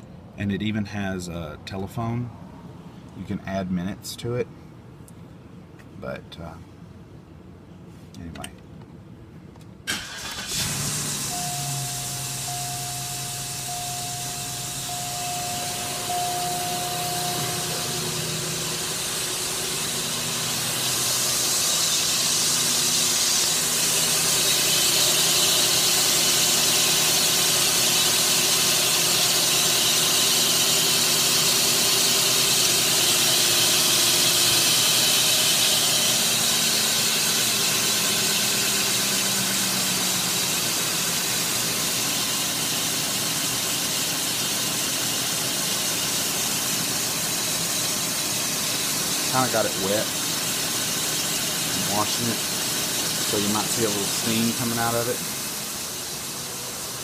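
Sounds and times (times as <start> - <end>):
car engine idling: 9.8 - 57.0
high hiss: 10.0 - 27.6.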